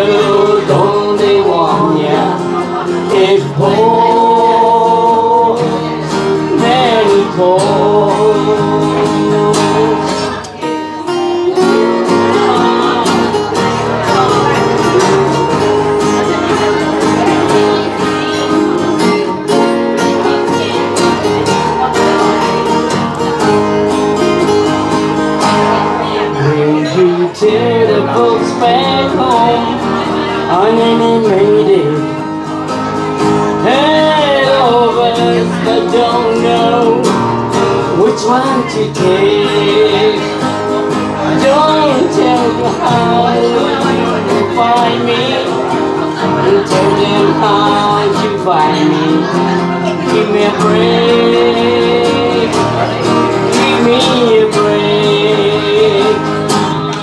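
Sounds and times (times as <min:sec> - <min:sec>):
strummed acoustic guitars: 0:00.0 - 0:57.0.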